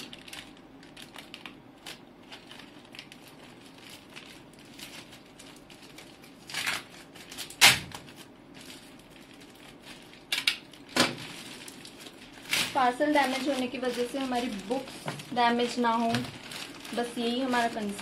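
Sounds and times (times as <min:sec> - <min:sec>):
plastic mailer crinkling: 0:00.0 - 0:18.0
plastic tearing rasp: 0:00.0 - 0:18.0.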